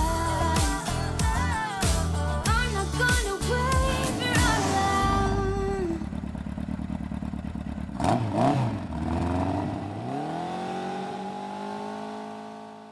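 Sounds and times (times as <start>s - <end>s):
motorcycle engine revving: 3.4s - 12.9s.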